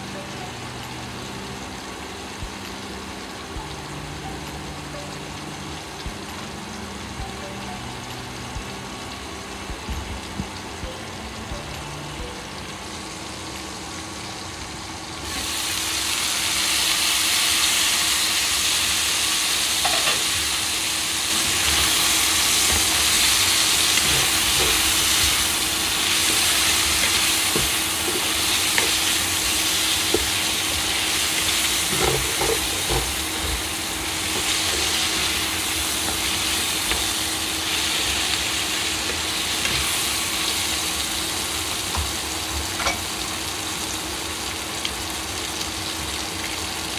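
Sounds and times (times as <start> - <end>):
cooktop hum: 0.0 - 46.9
food sizzling in a pan: 0.0 - 46.9
spatula scraping food in pan: 22.6 - 37.1.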